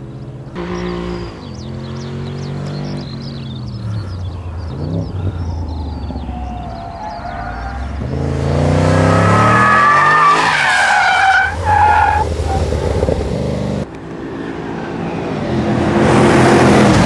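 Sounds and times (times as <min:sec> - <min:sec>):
car engine revving: 0:00.0 - 0:17.0
tyres squealing: 0:04.7 - 0:12.7.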